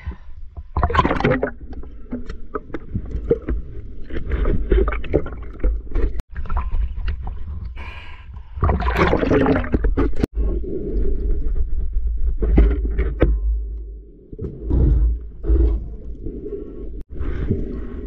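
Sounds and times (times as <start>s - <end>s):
water sloshing and splashing: 0.0s - 7.8s, 8.5s - 13.7s.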